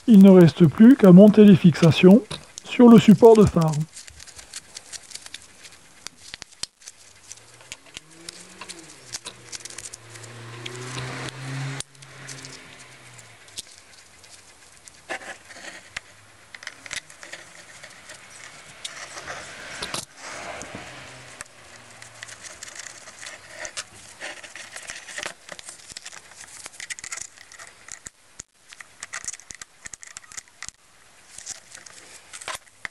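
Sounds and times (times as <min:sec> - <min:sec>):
small metal parts clicking: 0:21.8 - 0:32.9.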